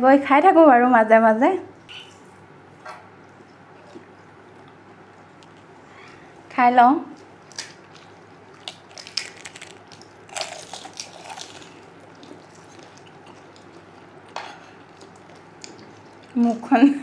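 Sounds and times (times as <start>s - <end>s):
chewing clicks: 5.4s - 5.7s, 7.1s - 14.1s, 14.8s - 16.4s
crunchy food being bitten: 7.2s - 16.4s.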